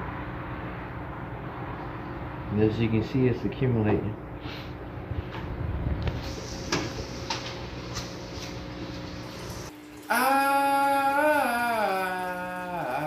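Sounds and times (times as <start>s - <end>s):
aquarium pump running: 4.9s - 13.0s.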